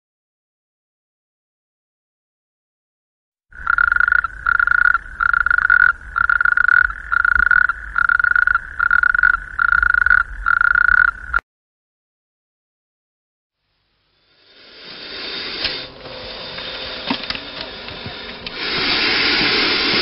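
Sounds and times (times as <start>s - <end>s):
frog calling: 3.5s - 11.4s.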